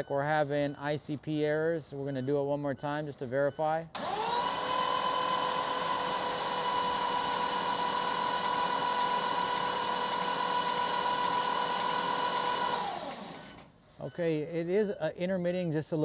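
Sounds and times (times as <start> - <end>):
diesel starter cranking: 4.0 - 13.8.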